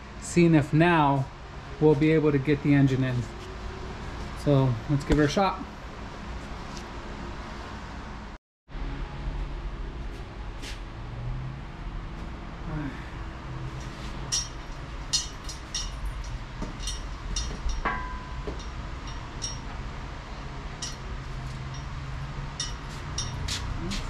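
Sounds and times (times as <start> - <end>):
low rumble of hoist rolling: 0.0 - 24.0
metallic clinks and rattles: 13.6 - 24.0
loud ringing clank: 13.8 - 23.6.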